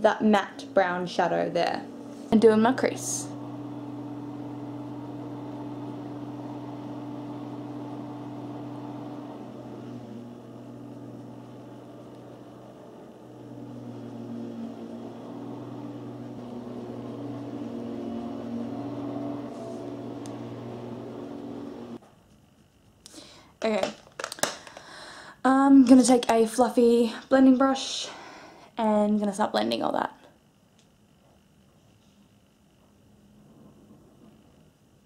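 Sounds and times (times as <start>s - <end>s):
lawnmower engine droning: 0.0s - 22.0s.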